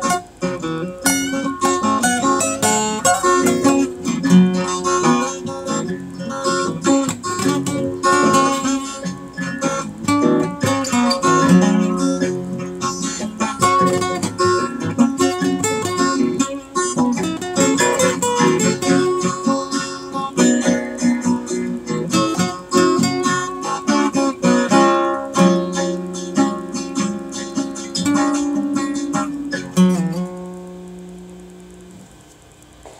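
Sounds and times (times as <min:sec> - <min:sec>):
acoustic guitar picking and strumming: 0:00.0 - 0:32.9.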